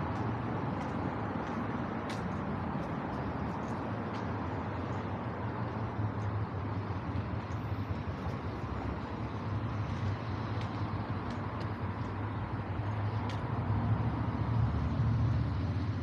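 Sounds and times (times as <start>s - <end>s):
cars passing: 0.0s - 16.0s
faint light ticks: 0.1s - 5.1s, 9.8s - 12.2s, 12.8s - 13.5s.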